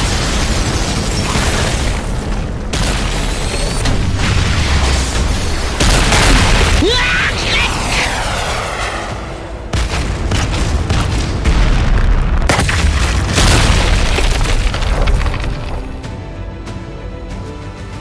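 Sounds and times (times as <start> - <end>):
booming impacts and blasts: 0.0 - 16.1
background music: 13.2 - 18.0.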